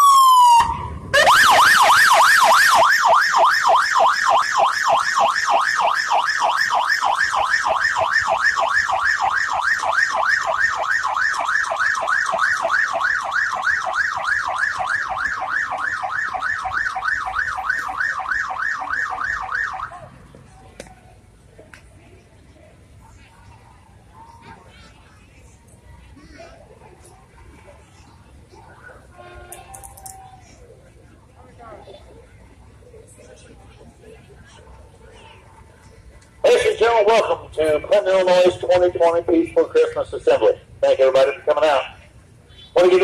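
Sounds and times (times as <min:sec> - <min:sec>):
siren in fast yelp mode: 0:00.0 - 0:20.0.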